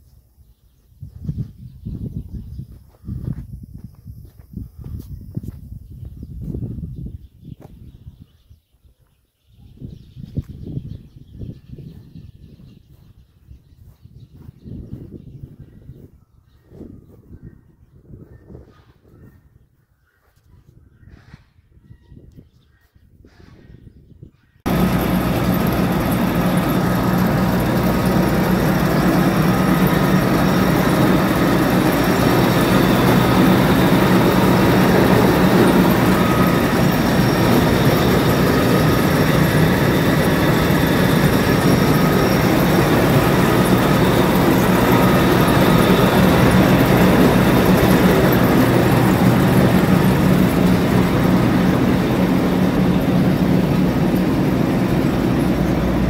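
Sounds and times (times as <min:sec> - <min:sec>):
combine harvester diesel engine: 0:24.7 - 0:56.0.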